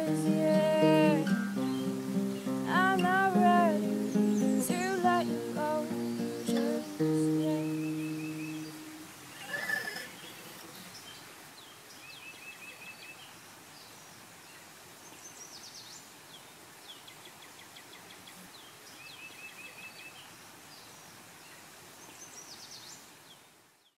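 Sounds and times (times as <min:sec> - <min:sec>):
birds chirping in trills: 0:00.0 - 0:11.2
steady background hiss: 0:00.0 - 0:23.9.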